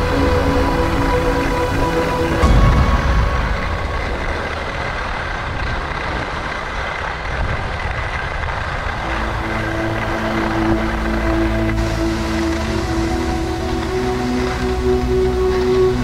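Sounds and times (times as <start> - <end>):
faint sustained music tones: 0.0 - 7.3, 8.0 - 16.0
skis running over snow: 0.0 - 16.0
wind on camera: 1.7 - 11.0.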